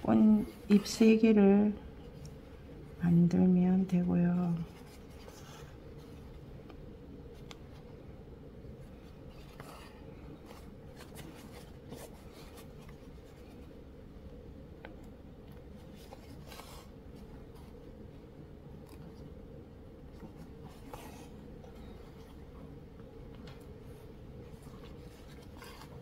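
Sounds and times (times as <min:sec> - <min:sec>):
needle and thread through cloth: 0:09.0 - 0:13.7.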